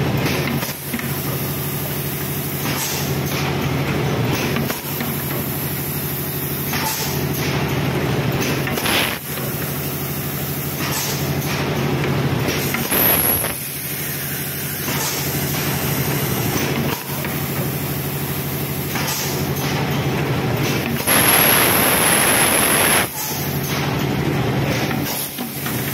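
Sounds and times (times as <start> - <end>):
pneumatic clacks: 2.5 - 3.7, 4.3 - 5.5, 6.6 - 25.9
machine humming: 12.8 - 13.8, 20.3 - 23.1
compressed air hissing: 21.0 - 23.1.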